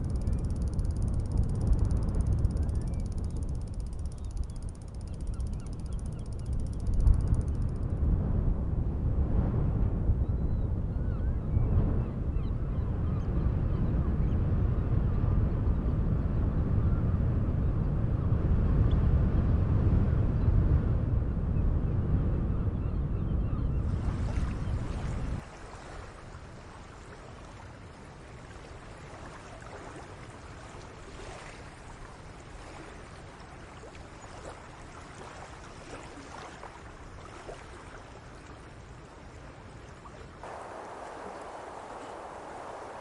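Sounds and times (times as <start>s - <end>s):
light wind: 0.0s - 43.0s
wind rumbling on microphone: 0.0s - 43.0s
water washing at river mouth: 24.0s - 43.0s.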